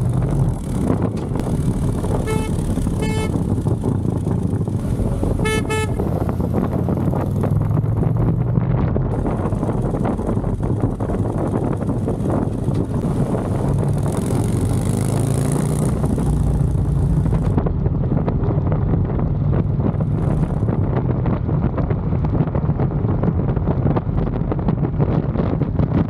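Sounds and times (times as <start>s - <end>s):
motorcycle engine running: 0.0s - 25.9s
wind buffeting microphone: 0.0s - 26.0s.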